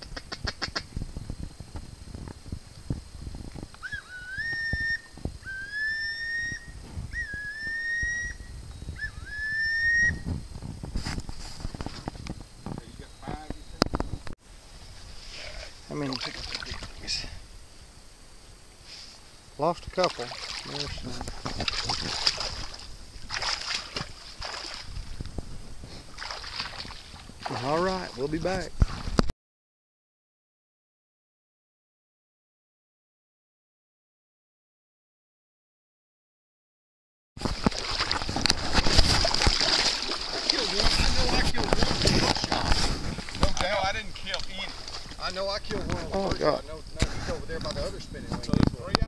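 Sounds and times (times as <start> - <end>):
high-pitched background hum: 0.0 - 29.0
rising whistled calls: 3.8 - 10.3
splashing in shallow water: 16.0 - 17.2, 20.0 - 25.2, 26.0 - 29.2, 37.4 - 45.5.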